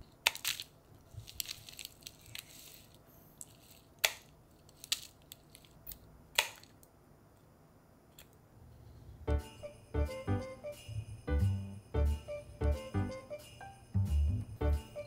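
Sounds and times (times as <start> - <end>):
branches crinkling and rustling: 0.4 - 3.0.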